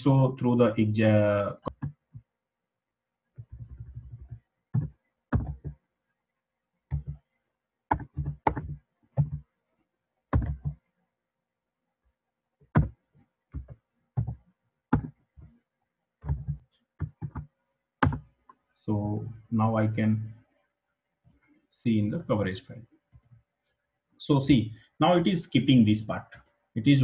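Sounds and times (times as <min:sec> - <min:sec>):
keyboard keystrokes: 0:03.4 - 0:05.7, 0:10.4 - 0:10.8.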